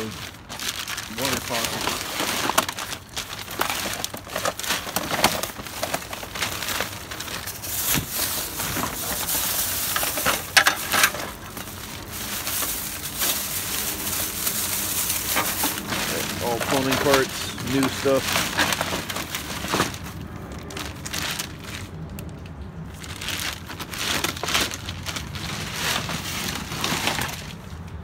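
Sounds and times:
plastic bags crinkling: 0.0 - 28.0.

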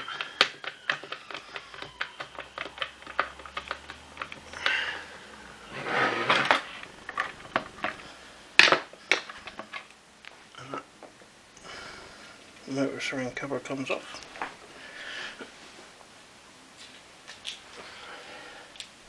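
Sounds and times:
screwdriver clicking: 0.0 - 4.8
plastic parts handled: 0.0 - 10.0.

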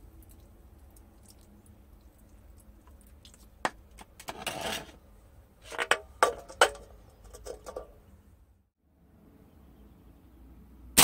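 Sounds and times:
can scraping on tiled floor: 4.3 - 5.0.

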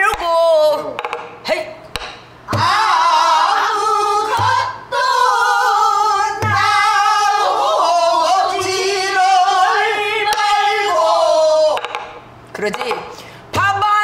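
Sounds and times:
deep barrel drum beats: 1.9 - 3.2, 4.2 - 4.8, 6.4 - 7.3.

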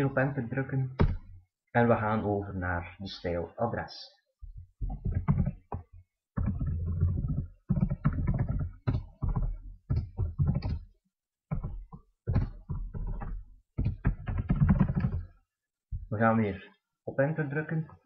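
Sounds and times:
typing on computer keyboard: 6.4 - 10.9, 11.5 - 15.3.

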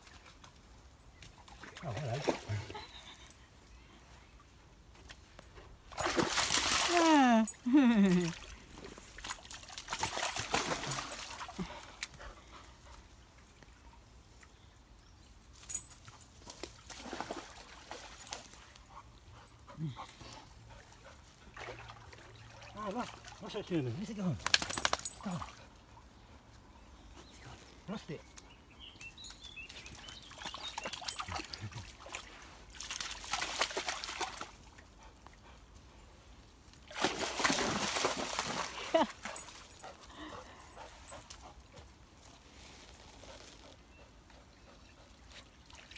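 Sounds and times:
dog splashing in water: 5.9 - 7.3, 8.3 - 11.6, 16.6 - 18.5, 30.3 - 34.7, 36.9 - 39.7
stream trickling: 20.5 - 26.6, 28.7 - 35.7, 44.6 - 45.9.

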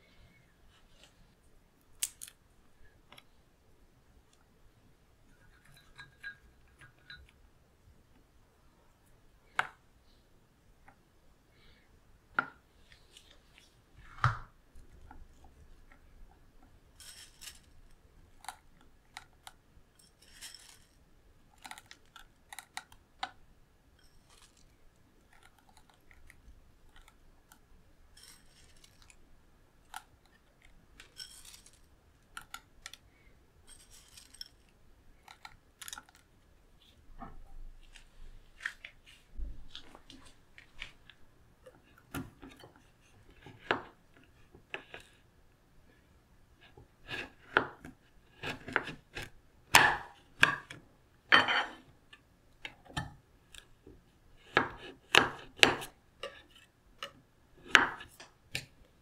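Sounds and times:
chopped nuts sprinkling: 20.0 - 21.0, 31.1 - 33.0, 33.7 - 34.5.

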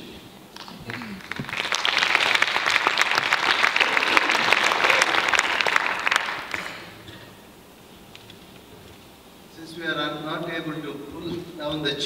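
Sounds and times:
audience applauding: 0.6 - 7.0.

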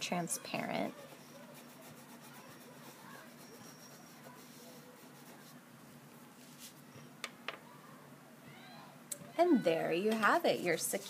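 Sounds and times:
wax crayon rubbing on paper: 0.9 - 5.6.

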